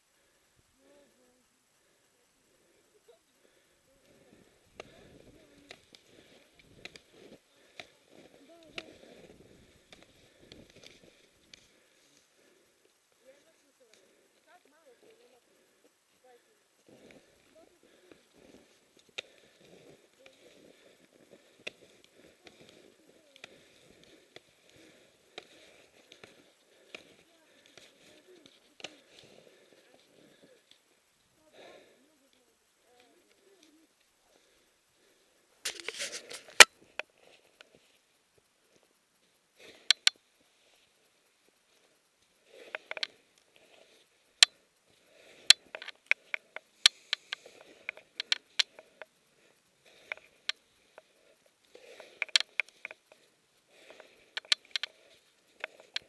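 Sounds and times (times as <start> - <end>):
snow shovel crunching snow: 35.7 - 36.6.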